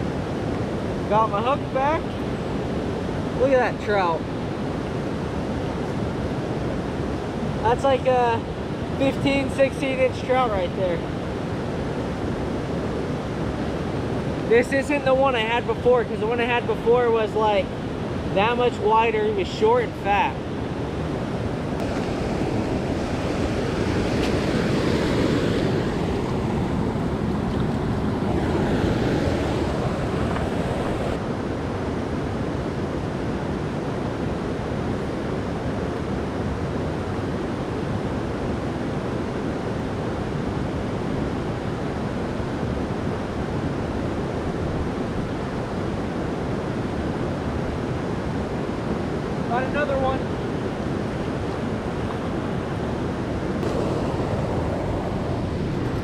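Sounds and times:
wind on microphone: 0:00.0 - 0:56.0
creek water rushing: 0:00.1 - 0:31.3, 0:44.6 - 0:56.0.

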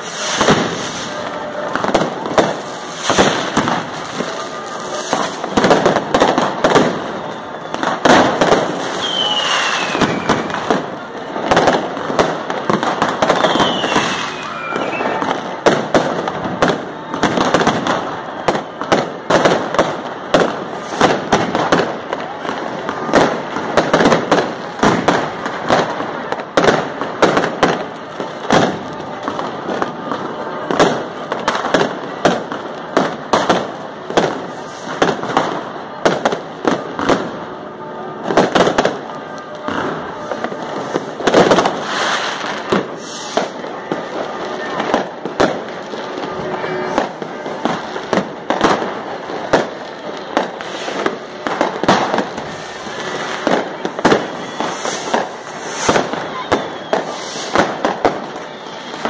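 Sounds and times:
firecrackers banging and crackling: 0:00.0 - 0:59.0
falling firework whistle: 0:06.2 - 0:10.9, 0:13.0 - 0:15.8, 0:39.4 - 0:45.5, 0:50.3 - 0:59.0.

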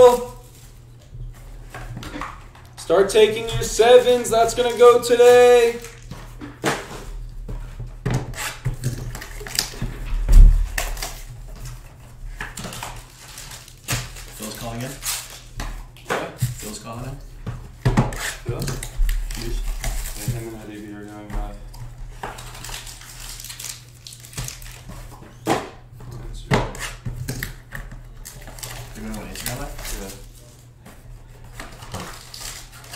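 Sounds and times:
steady low hum: 0:05.7 - 0:32.8
heavy low thump: 0:10.0 - 0:11.0.

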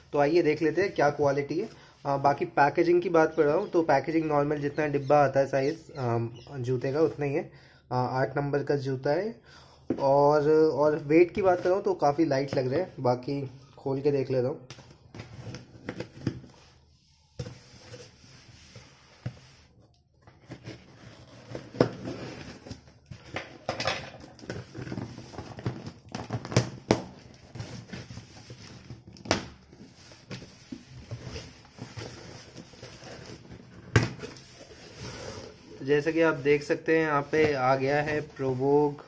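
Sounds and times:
cardboard rustling and scraping: 0:15.0 - 0:26.6, 0:27.2 - 0:39.0.

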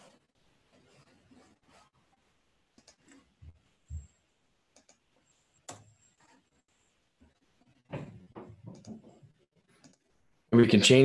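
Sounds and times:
computer mouse clicking: 0:02.8 - 0:03.3, 0:04.7 - 0:05.0, 0:05.6 - 0:06.4, 0:08.7 - 0:09.1, 0:09.8 - 0:10.1.

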